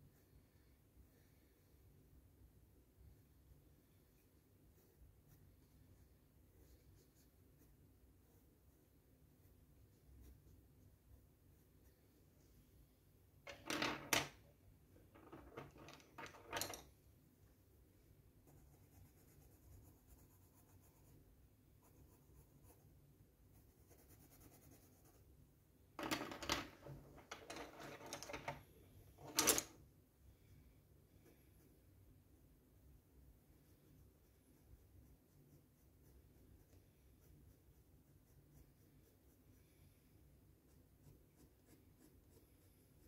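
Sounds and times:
pencils clattering on table: 0:13.5 - 0:14.4, 0:15.1 - 0:16.9, 0:26.0 - 0:28.6, 0:29.2 - 0:29.8
pencil scratching on paper: 0:18.4 - 0:21.2, 0:21.8 - 0:25.3, 0:33.5 - 0:39.7, 0:40.5 - 0:43.0.

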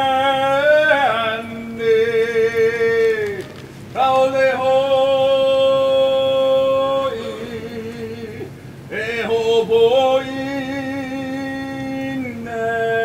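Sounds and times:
man chanting: 0:00.0 - 0:13.0.

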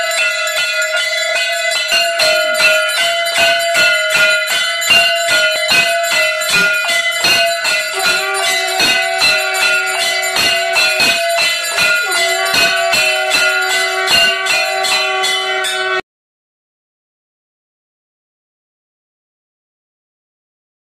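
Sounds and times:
lower-pitched bell tone: 0:00.0 - 0:16.0
temple bells ringing rapidly: 0:00.0 - 0:16.0.

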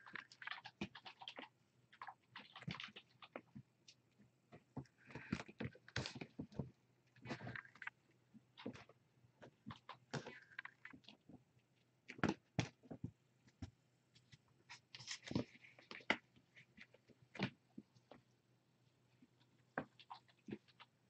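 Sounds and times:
kittens tapping and rustling: 0:04.5 - 0:11.5.

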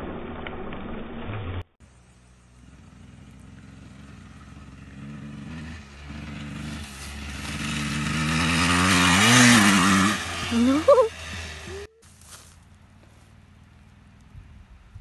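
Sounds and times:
dirt bike engine revving: 0:02.0 - 0:12.0.

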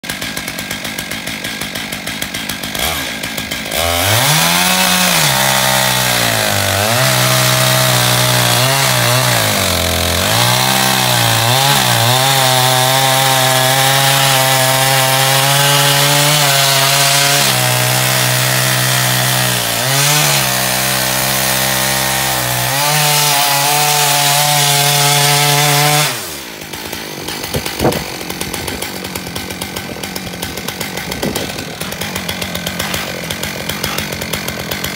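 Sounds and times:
chainsaw cutting wood: 0:00.0 - 0:34.9.

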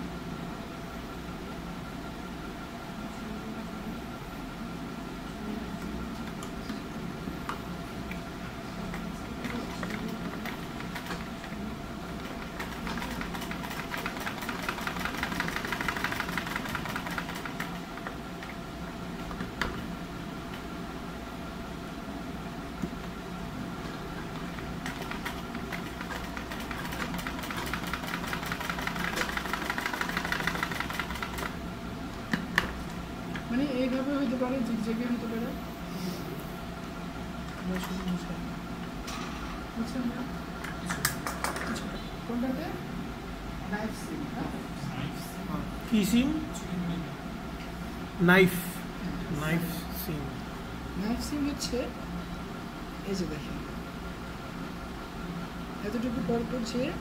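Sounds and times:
sewing machine stitching: 0:12.3 - 0:17.8, 0:24.8 - 0:31.5.

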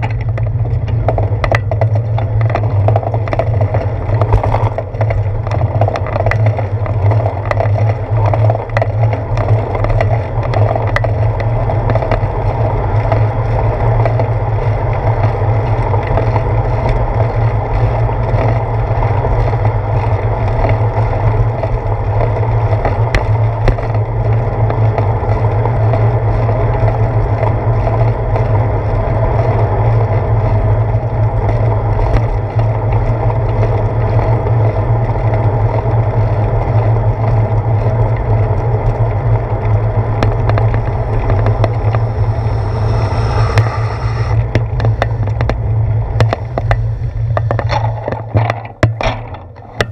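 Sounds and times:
knocks from road bumps: 0:00.0 - 0:12.3, 0:46.2 - 0:49.9
wind and road rumble: 0:00.0 - 0:49.9.

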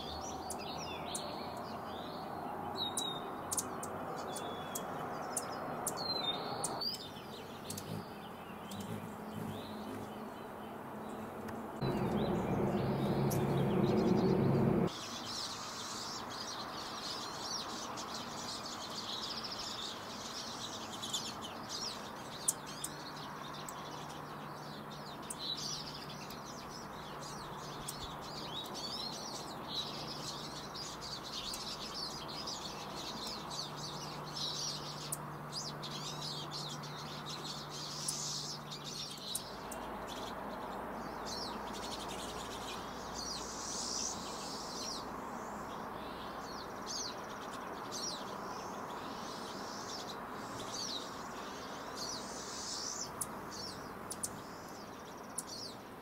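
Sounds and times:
small birds chirping: 0:00.0 - 0:56.0
faint low hum: 0:11.8 - 0:14.9.

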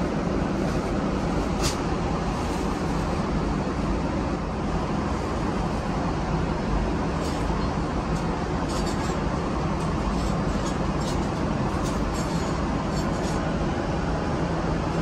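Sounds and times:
airplane cabin hum: 0:00.0 - 0:15.0.

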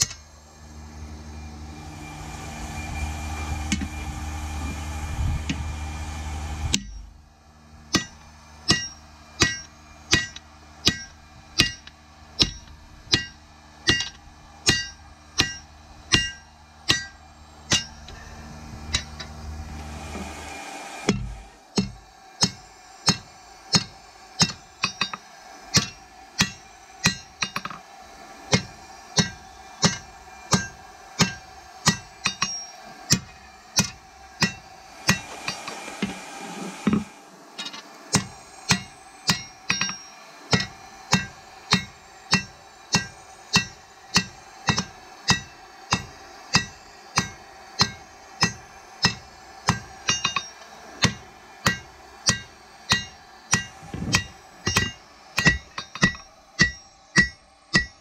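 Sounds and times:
hammer striking metal on anvil: 0:00.0 - 0:00.2, 0:07.9 - 0:18.3, 0:18.9 - 0:19.3, 0:21.1 - 0:27.8, 0:28.5 - 0:35.8, 0:36.9 - 0:58.0.

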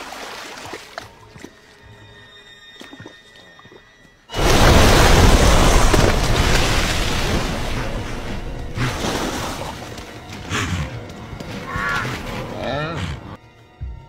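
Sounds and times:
thrashing water: 0:00.0 - 0:01.8, 0:04.3 - 0:10.5
loud splash of water: 0:04.3 - 0:10.0.

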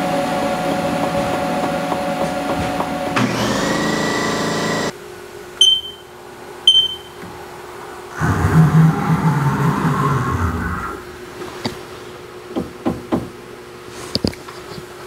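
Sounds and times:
mill machine whine: 0:00.0 - 0:05.0
short electronic beeps: 0:05.6 - 0:06.1, 0:06.7 - 0:07.2.

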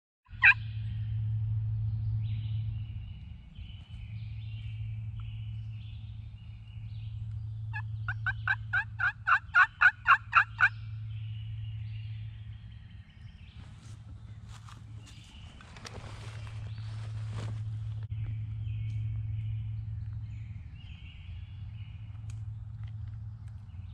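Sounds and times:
wild turkey yelping: 0:00.3 - 0:00.6, 0:07.7 - 0:10.8
steady low hum: 0:00.3 - 0:23.9.

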